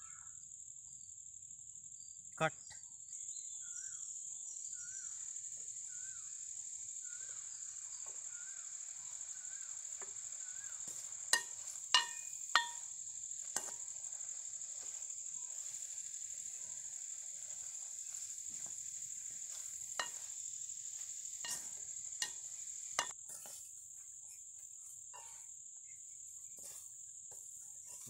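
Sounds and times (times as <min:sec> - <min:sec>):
crickets chirring: 0:00.0 - 0:28.0
ladle knocking on metal pan: 0:11.4 - 0:12.9.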